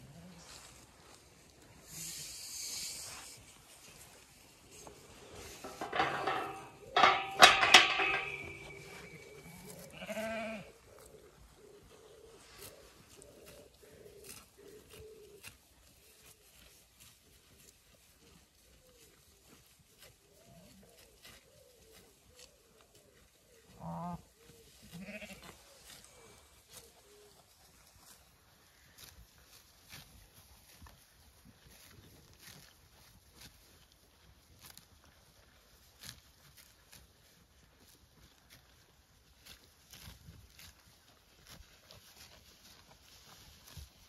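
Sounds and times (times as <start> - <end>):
metal gate clanking: 5.6 - 9.4
sheep bleating: 9.4 - 10.8, 24.9 - 25.6
sheep tearing grass clicks: 12.4 - 23.2, 24.4 - 44.0.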